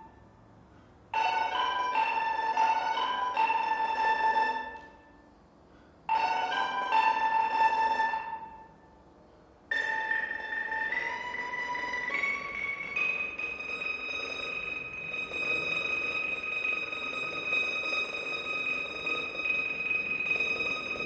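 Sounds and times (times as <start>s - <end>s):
xylophone: 1.2s - 5.0s, 6.1s - 8.7s, 9.7s - 21.0s
mandolin: 9.7s - 21.0s.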